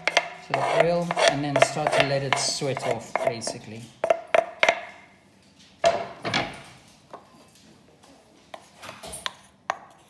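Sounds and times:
wooden spoon scraping a board: 0:00.0 - 0:04.4.

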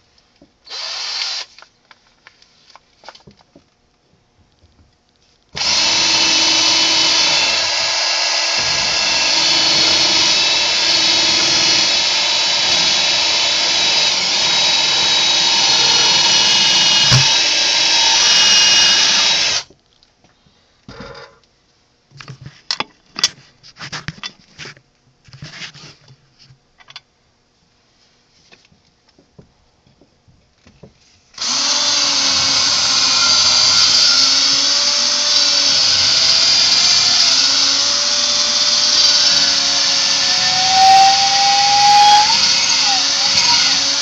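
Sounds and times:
power drill whining: 0:00.7 - 0:01.6, 0:05.6 - 0:19.7, 0:31.4 - 0:44.0.

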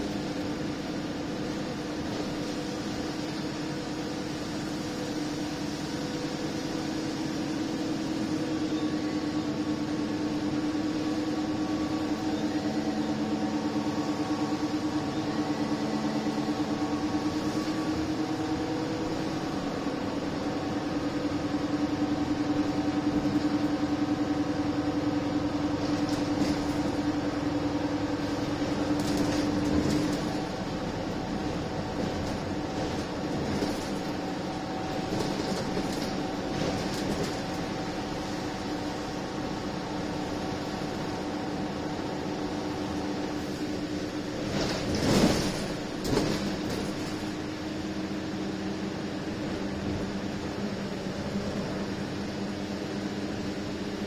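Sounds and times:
bus engine whine: 0:00.0 - 0:54.0
road noise: 0:00.0 - 0:54.0.

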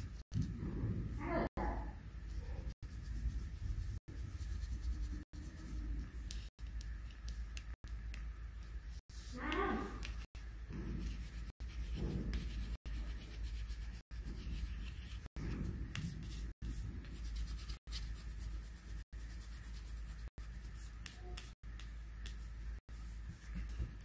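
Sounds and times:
steady low hum: 0:00.0 - 0:24.0
pencil scratching on paper: 0:09.1 - 0:21.5.

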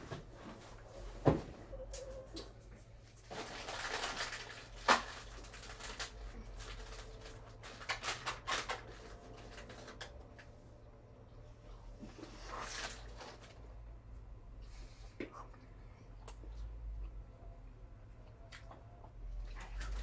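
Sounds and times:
crisp packet rustling: 0:03.2 - 0:10.2.

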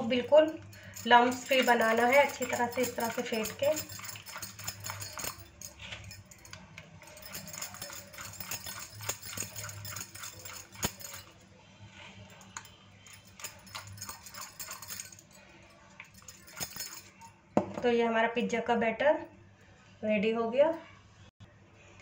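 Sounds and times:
spoon beating batter in a bowl: 0:00.4 - 0:11.3.

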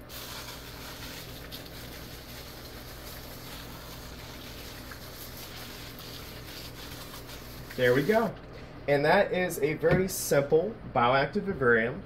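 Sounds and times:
mister spraying water hiss: 0:00.0 - 0:08.3.

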